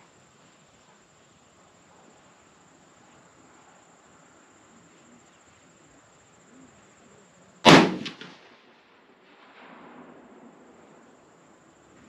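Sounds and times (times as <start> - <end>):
rifle shot: 7.7 - 8.5.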